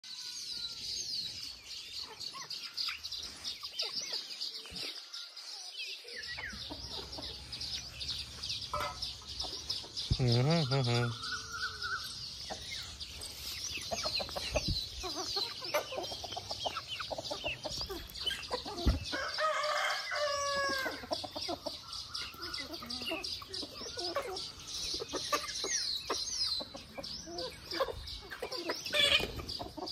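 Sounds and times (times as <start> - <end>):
chickens clucking and chirping: 0.0 - 29.9
rooster crowing: 19.2 - 21.0.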